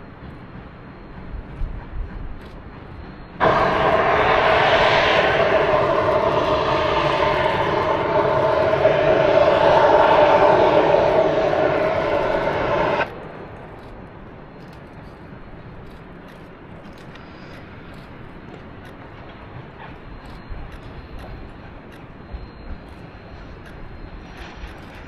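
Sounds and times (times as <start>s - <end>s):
steam locomotive whistle: 3.4s - 13.2s.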